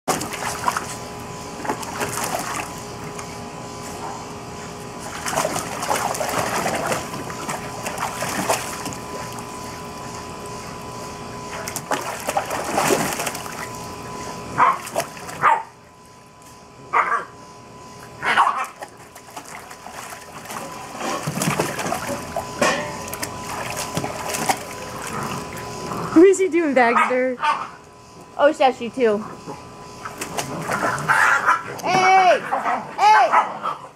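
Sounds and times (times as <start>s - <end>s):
puppy splashing in water: 0.1s - 3.3s, 5.0s - 10.8s, 11.5s - 15.8s, 18.2s - 26.5s, 30.0s - 32.1s.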